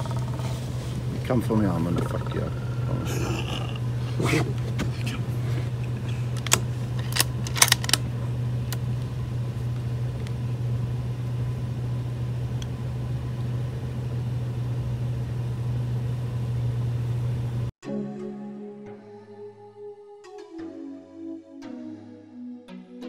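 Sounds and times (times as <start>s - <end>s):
vehicle engine idling: 0.0s - 17.7s
sharp clicks: 6.3s - 8.0s.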